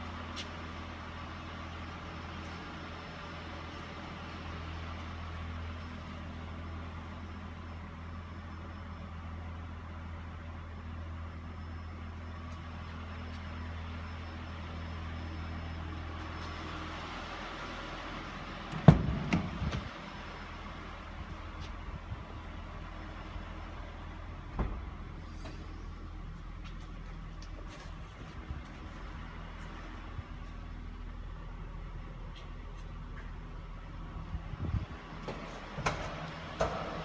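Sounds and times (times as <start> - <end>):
car engine idling: 0.0 - 37.0
loud thump: 18.8 - 19.5.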